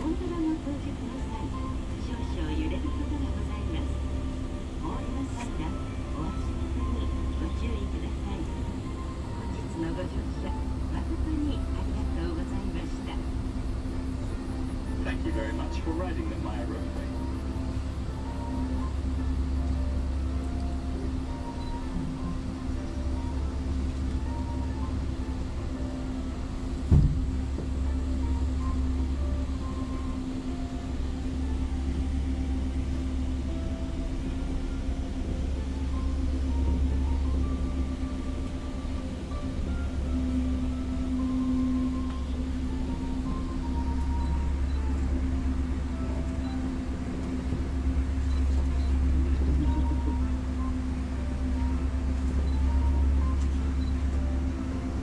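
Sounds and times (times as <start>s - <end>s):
cable car cabin rumble: 0.0s - 55.0s
thump: 26.9s - 27.3s.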